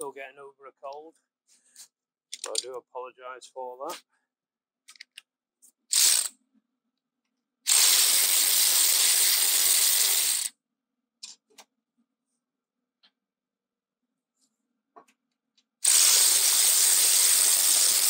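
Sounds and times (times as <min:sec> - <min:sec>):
faint tool handling clicks: 0:04.9 - 0:05.3.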